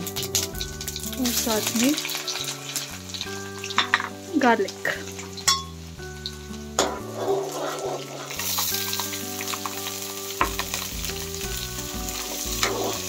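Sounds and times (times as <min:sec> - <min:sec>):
onions sizzling in hot oil: 0:00.0 - 0:13.0
spoon clinking on metal: 0:05.4 - 0:05.7
metal spoon scraping pan: 0:06.8 - 0:08.8, 0:12.6 - 0:13.0.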